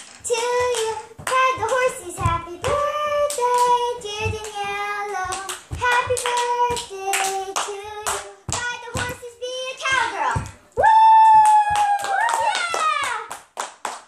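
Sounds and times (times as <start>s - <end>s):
girls singing: 0.2s - 10.7s
hands clapping: 5.3s - 9.2s, 11.0s - 14.0s.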